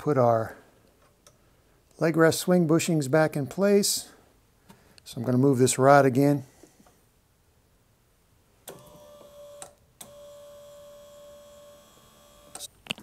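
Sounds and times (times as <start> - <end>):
recliner motor whining: 8.7 - 12.7.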